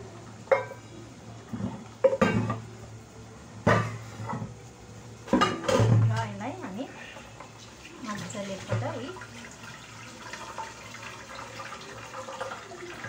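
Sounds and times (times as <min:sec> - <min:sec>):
metal pot clanking against sink: 0:05.3 - 0:06.2.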